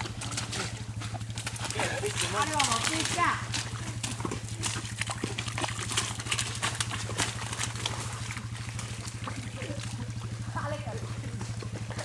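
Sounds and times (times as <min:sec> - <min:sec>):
atv engine idling: 0:00.0 - 0:12.0
mud and water splashing: 0:00.0 - 0:12.0.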